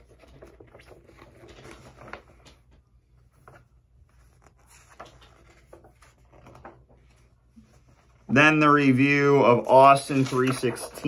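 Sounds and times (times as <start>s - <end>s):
magazine pages turning: 0.0s - 11.0s.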